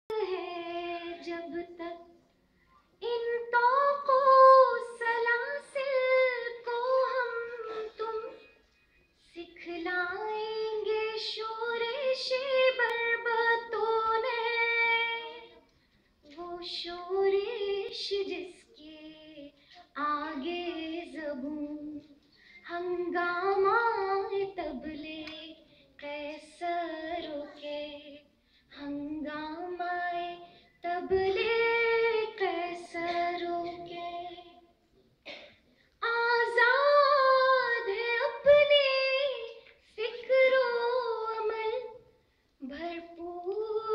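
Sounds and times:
woman singing unaccompanied: 0.1 - 2.2, 3.0 - 8.5, 9.2 - 15.6, 16.2 - 34.7, 36.0 - 42.0, 42.6 - 43.9.

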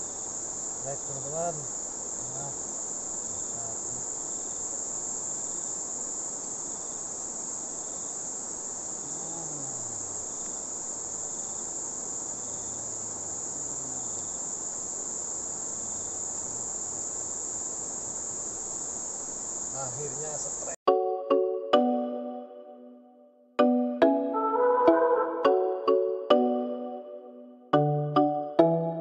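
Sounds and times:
insects droning: 0.0 - 21.6, 25.4 - 26.6.

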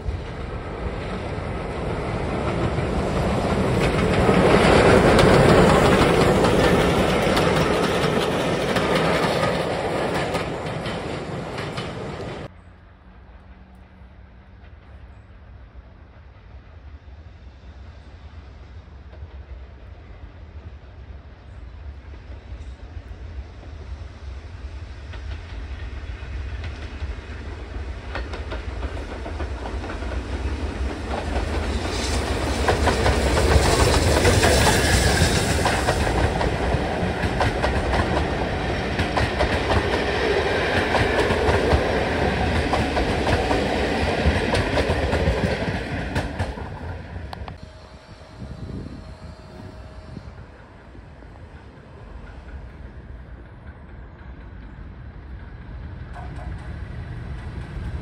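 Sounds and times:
train wheel clatter: 0.0 - 12.5, 25.0 - 47.6, 51.5 - 58.0
steam train passing: 0.0 - 58.0.

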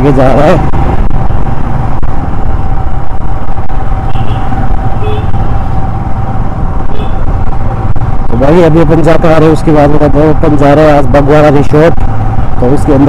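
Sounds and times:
motorcycle running: 0.0 - 13.0
wind rumble on microphone: 0.0 - 13.0.

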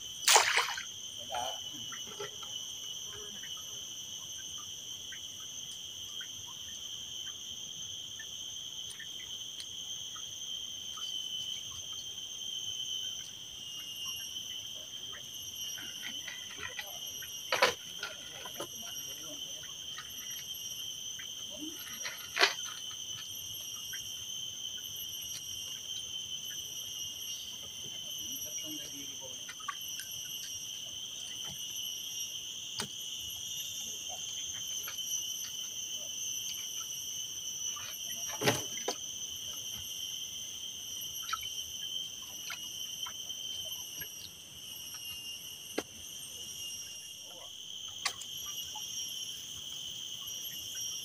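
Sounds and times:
shrill insect chorus: 0.0 - 51.0.

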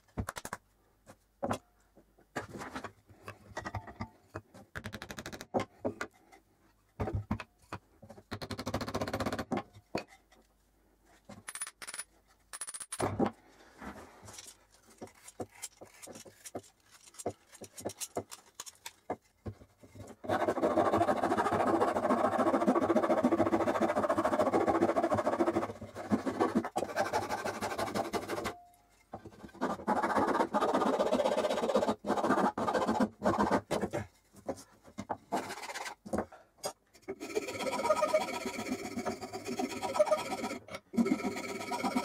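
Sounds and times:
file rasping on wood: 20.2 - 28.5, 29.5 - 33.8, 37.2 - 42.0.

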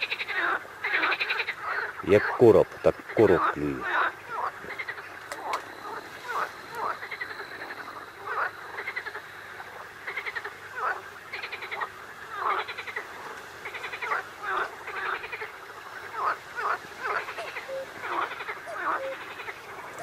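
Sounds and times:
frogs croaking: 0.0 - 20.0.

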